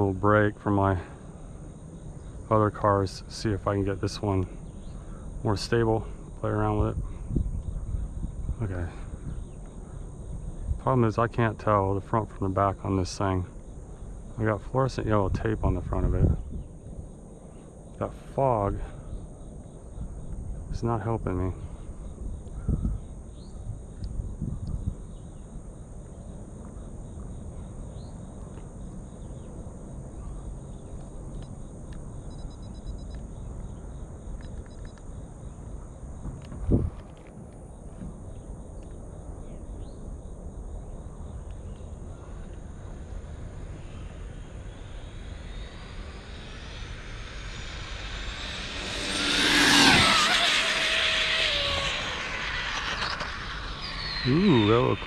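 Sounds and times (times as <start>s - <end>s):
low rumble on microphone: 0.0s - 16.9s, 40.8s - 55.0s
faint chirps: 0.0s - 36.5s, 37.6s - 55.0s
high-pitched insect drone: 0.0s - 36.5s, 37.7s - 55.0s
rc truck motor whine passing: 36.4s - 55.0s.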